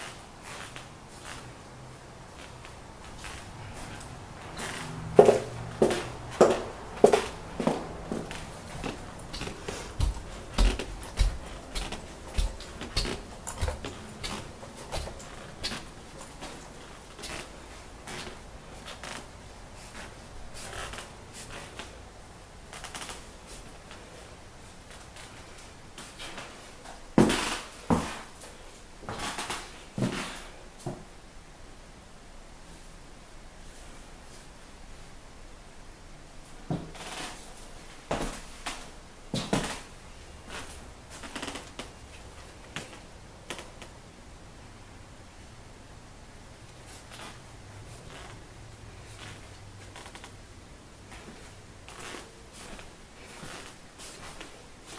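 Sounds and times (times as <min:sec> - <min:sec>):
soft rustles and scrapes: 0:00.0 - 0:22.0, 0:22.7 - 0:30.6, 0:46.7 - 0:50.4, 0:51.1 - 0:54.9
faint steady hiss: 0:00.0 - 0:54.9.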